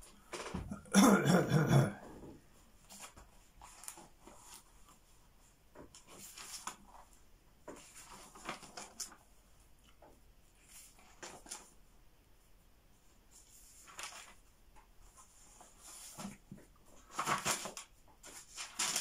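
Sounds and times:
rustling and handling objects: 0.0s - 0.9s, 2.0s - 19.0s.

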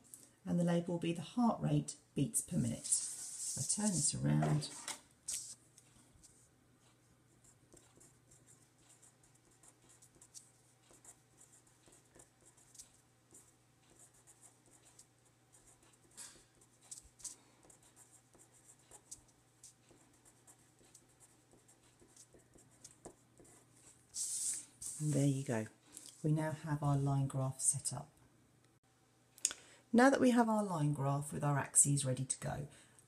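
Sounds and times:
felt-tip pen scratching on paper: 2.7s - 5.6s, 7.4s - 25.4s.

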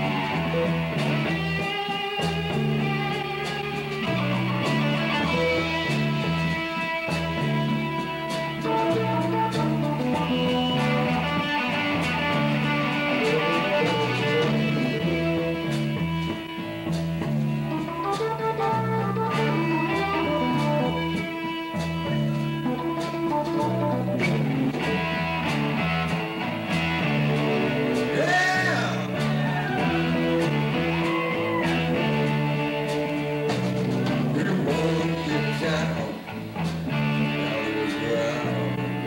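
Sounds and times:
drum kit: 0.0s - 39.0s
electric bass line: 0.0s - 39.0s
electric guitar: 0.0s - 39.0s
person singing: 13.1s - 16.3s, 28.0s - 36.4s, 37.2s - 39.0s.

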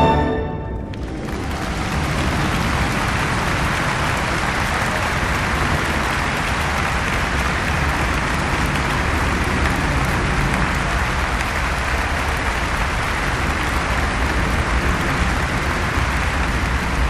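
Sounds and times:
low rumble: 0.0s - 11.0s
crowd applauding: 0.0s - 17.0s.

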